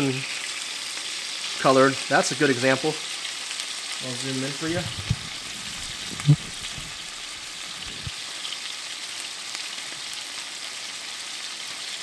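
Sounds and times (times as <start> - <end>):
chicken sizzling in oil: 0.0 - 12.0
short thump: 4.8 - 7.1.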